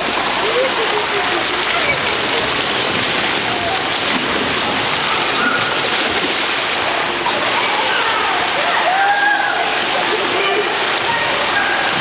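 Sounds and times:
water rushing and splashing: 0.0 - 12.0
children shouting: 5.0 - 6.0, 7.2 - 12.0.

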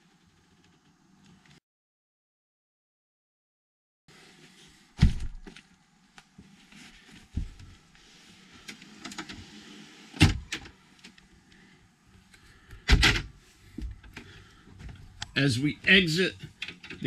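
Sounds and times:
small clicks and rustling: 0.0 - 1.6, 8.6 - 9.5, 10.5 - 12.8, 16.4 - 17.0.

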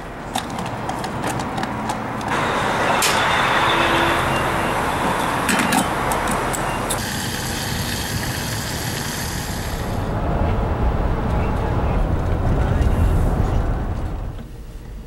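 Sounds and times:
fuel flowing into tank: 5.4 - 10.2.

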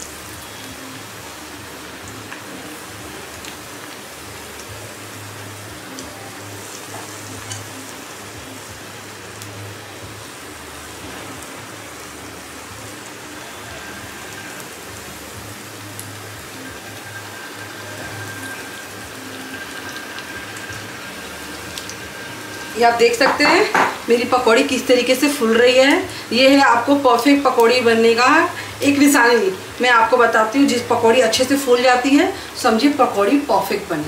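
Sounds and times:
deep-frying oil sizzling: 0.0 - 34.0
oil crackles and pops: 2.0 - 4.8.

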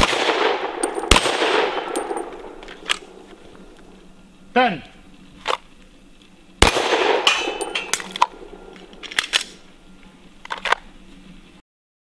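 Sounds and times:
pistol shots with echo: 0.0 - 3.8, 6.6 - 9.6
metallic ring: 0.7 - 3.6, 7.2 - 9.0.

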